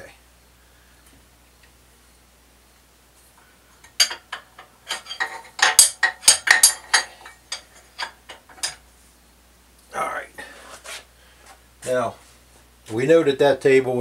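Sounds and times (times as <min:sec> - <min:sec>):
wrench and steel parts clinking: 0:03.8 - 0:08.8.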